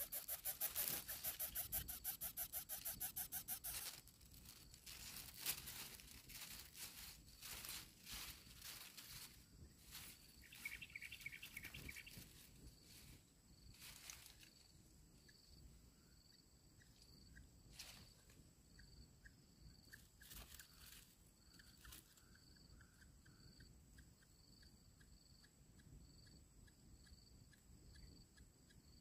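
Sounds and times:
bird chirps: 0.0s - 4.0s, 10.0s - 12.4s, 21.4s - 28.9s
soft rustles: 2.6s - 14.6s.

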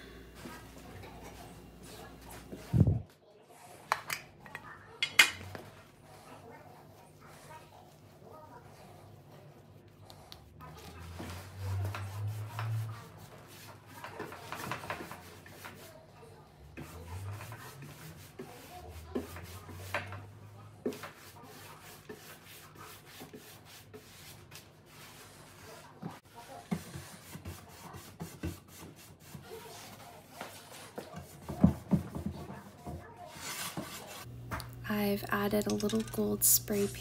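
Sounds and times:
brush rubbing on wood: 6.0s - 16.2s, 16.8s - 34.3s.

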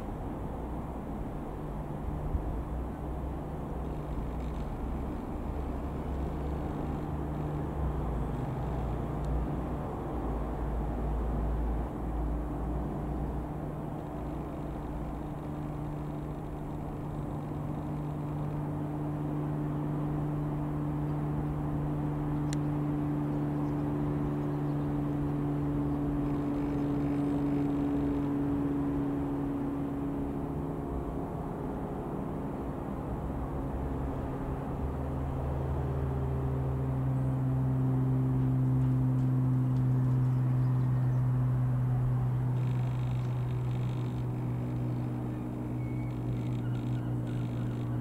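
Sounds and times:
propeller plane flying overhead: 0.0s - 48.0s.

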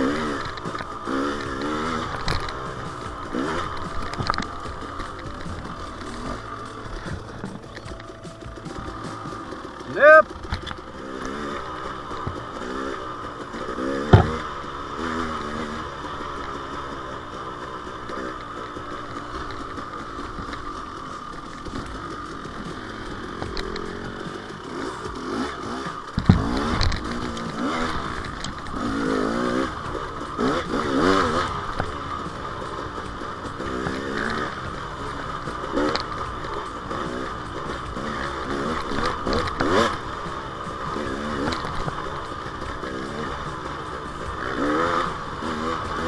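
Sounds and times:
dirt bike engine revving: 0.0s - 46.0s
sharp knocks: 14.1s - 14.5s.

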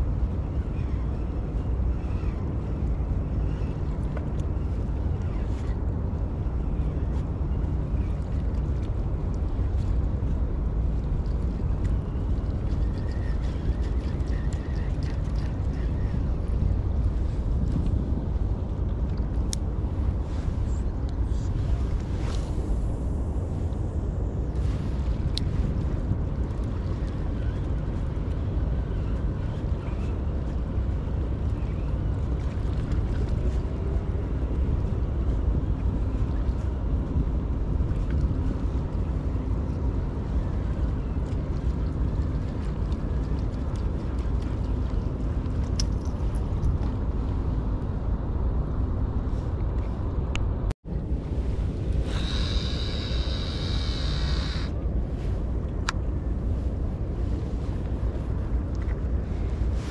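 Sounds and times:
wind buffeting microphone: 0.0s - 59.9s
fishing reel whirring: 52.0s - 54.7s.

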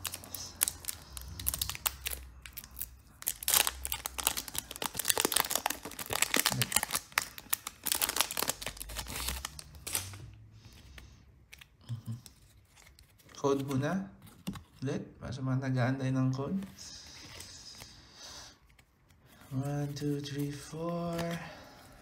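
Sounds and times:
foil wrapper crinkling: 0.0s - 10.2s.

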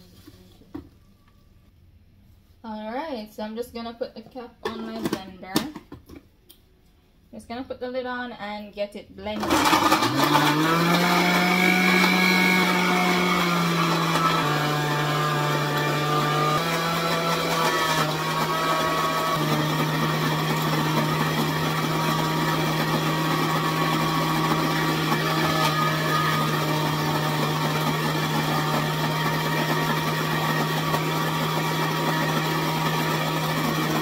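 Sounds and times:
blender motor running: 9.4s - 34.0s.

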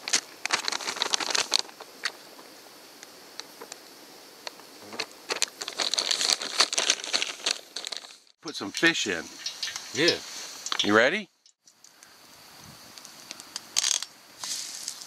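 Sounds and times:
plastic bags crinkling: 0.0s - 2.2s, 5.0s - 8.4s.

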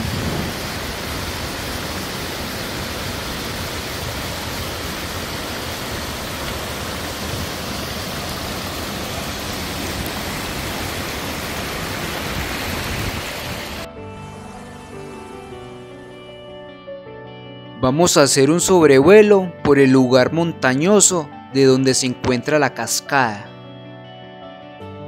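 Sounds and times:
water rushing over waterfall: 0.0s - 13.9s.

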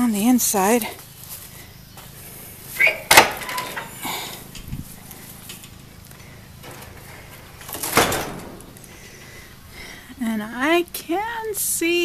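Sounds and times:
knocks and rustles: 2.8s - 9.6s.

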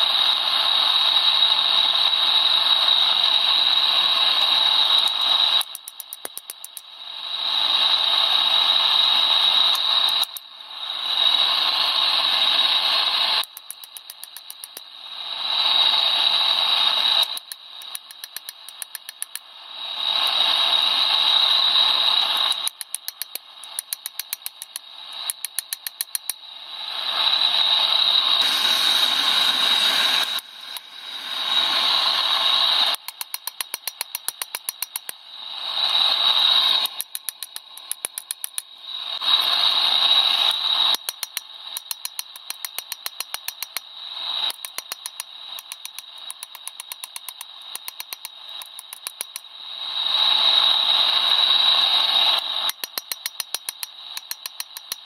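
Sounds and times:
loud rushing hiss: 28.4s - 32.9s.

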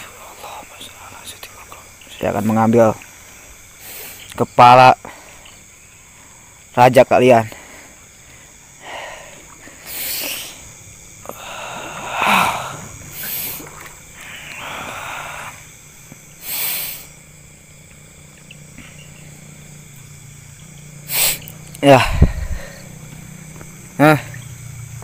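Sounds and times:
faint low hum: 0.0s - 25.0s
man's forceful hissing breaths: 3.2s - 4.3s, 5.0s - 6.7s, 7.4s - 17.3s, 21.0s - 24.4s.

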